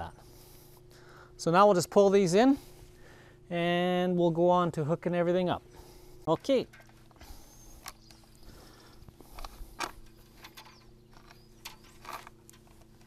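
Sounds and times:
wires clicking and scraping: 6.2 - 8.3, 9.0 - 13.0.

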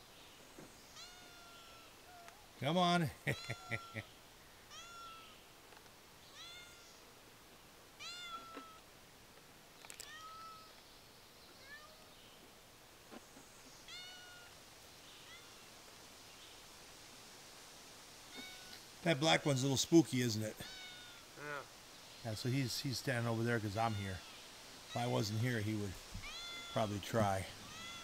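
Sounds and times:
cat meowing: 1.0 - 2.3, 6.3 - 6.9, 8.0 - 8.8, 10.0 - 10.7, 13.9 - 14.6, 26.2 - 28.0.

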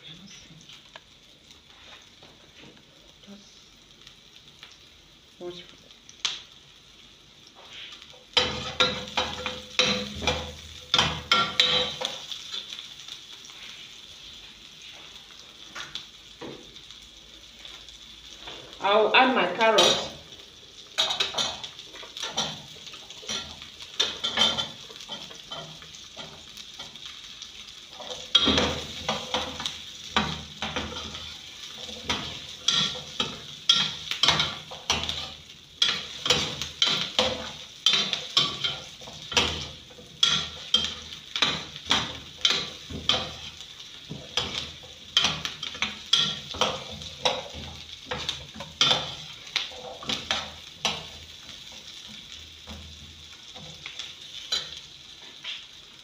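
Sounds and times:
vegetables sizzling in oil: 0.0 - 56.0
metal spoon scraping a pan: 7.7 - 12.8, 21.0 - 27.0, 27.9 - 51.2.

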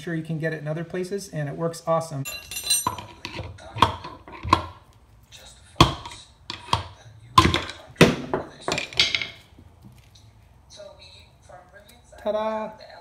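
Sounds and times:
screwdriver knocking on metal bushing: 5.8 - 9.4.

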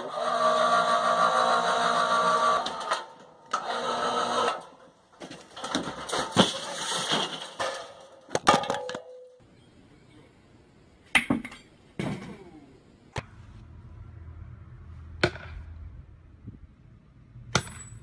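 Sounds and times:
clattering: 5.2 - 9.2.

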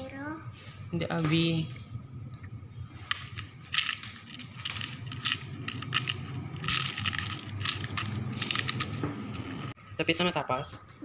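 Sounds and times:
plastic beads clicking and rattling: 3.0 - 9.7.

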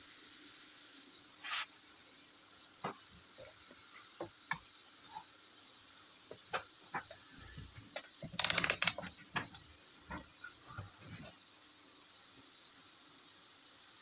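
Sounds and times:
rotary selector clicking: 8.4 - 9.0.

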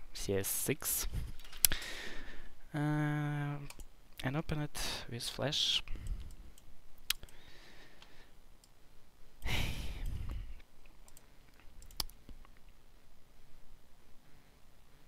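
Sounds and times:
breath into microphone: 1.1 - 2.6, 9.6 - 10.6
computer mouse clicks: 6.0 - 7.4, 10.0 - 12.6.

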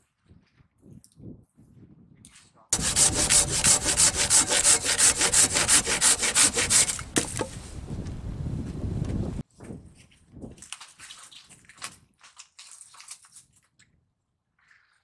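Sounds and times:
hand saw cutting wood: 2.8 - 7.6.

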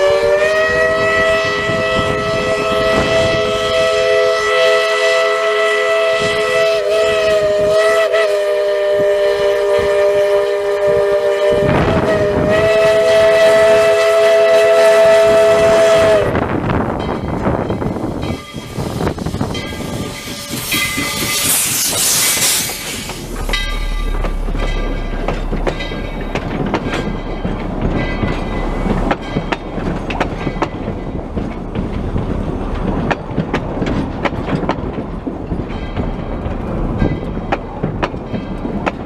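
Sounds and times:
wheels clicking over rail joints: 16.4 - 39.0
steam hissing: 17.8 - 33.0
high ringing tones: 19.4 - 32.2.

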